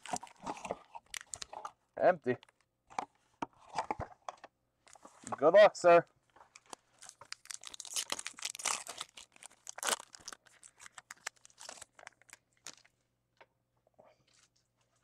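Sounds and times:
wrapper tearing and crinkling: 0.0s - 1.6s, 6.6s - 12.9s.

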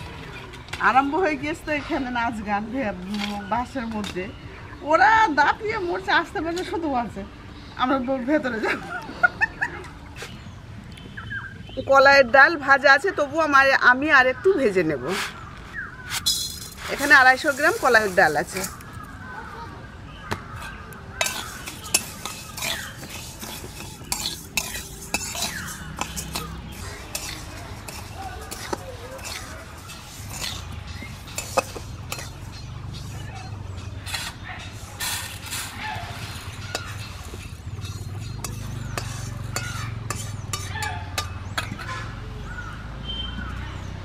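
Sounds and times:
birds chirping: 0.0s - 44.0s
metal spatula scraping a metal pan: 16.0s - 19.0s, 20.6s - 42.2s
dry lentils rattling against metal: 16.1s - 19.0s, 21.2s - 42.0s.

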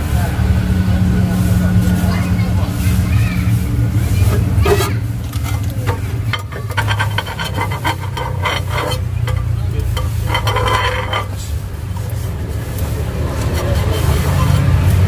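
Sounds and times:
steady low hum: 0.0s - 15.0s
metal spatula scraping griddle: 3.7s - 15.0s.

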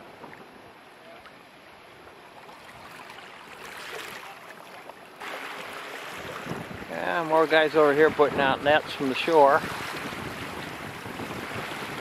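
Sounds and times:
choppy water: 0.0s - 12.0s
wind: 0.0s - 12.0s
wind gusts on microphone: 5.2s - 12.0s.

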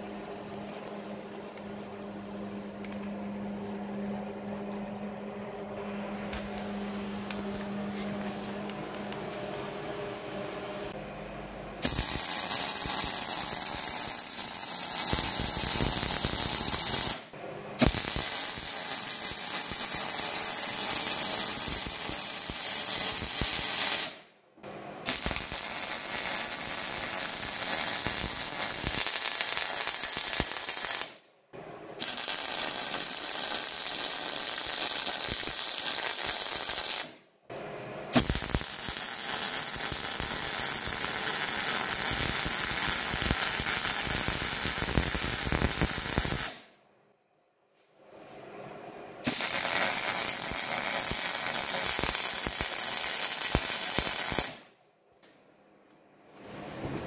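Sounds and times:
welding arc: 11.8s - 24.3s, 25.1s - 31.2s, 32.0s - 37.2s, 38.2s - 46.7s, 49.2s - 54.7s.

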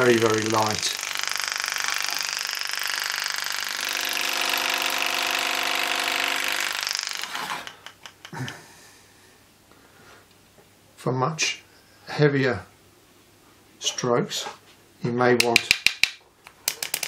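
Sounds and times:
engraving handpiece buzzing: 0.0s - 7.9s.

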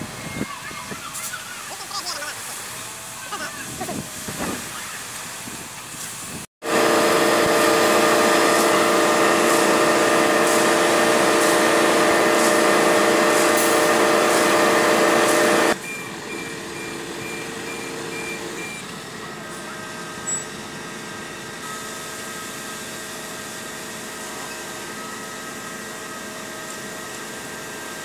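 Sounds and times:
diesel engine running loud: 6.6s - 28.0s
high rapid electronic beep: 15.8s - 18.8s.

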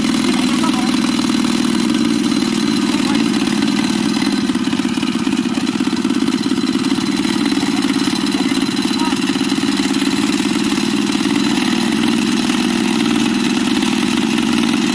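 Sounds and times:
small engine chugging: 0.0s - 14.9s.

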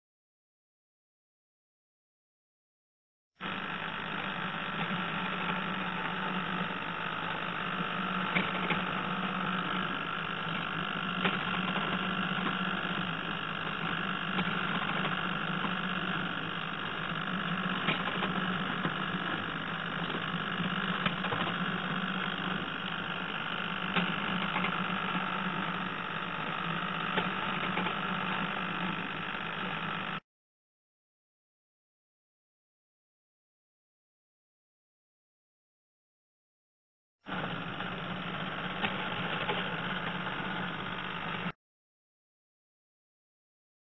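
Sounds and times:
motor humming: 3.4s - 30.2s, 37.3s - 41.6s.

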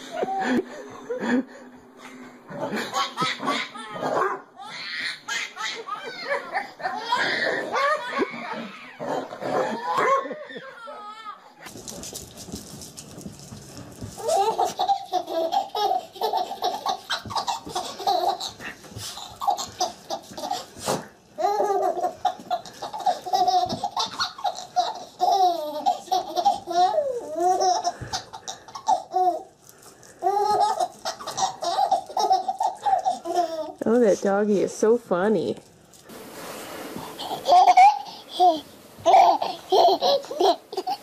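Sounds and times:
baby giggling: 14.2s - 20.7s, 21.4s - 29.5s, 30.2s - 33.8s, 37.1s - 41.0s.

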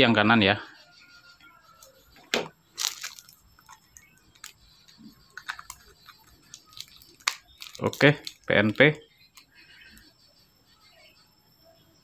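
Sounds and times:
battery clicks: 1.8s - 10.1s
plastic wrap crinkling: 2.2s - 9.0s.

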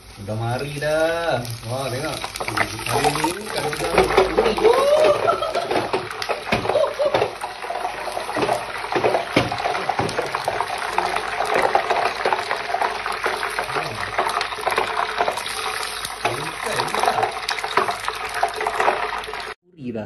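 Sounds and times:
oil sizzling and crackling: 0.0s - 19.6s.

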